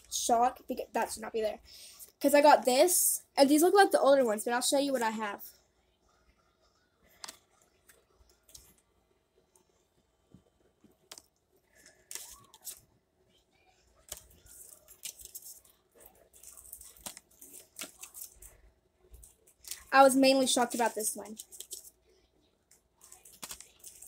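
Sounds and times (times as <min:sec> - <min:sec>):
trading cards rustling: 0:07.1 - 0:08.8, 0:10.9 - 0:12.9, 0:14.0 - 0:22.0, 0:23.0 - 0:24.0.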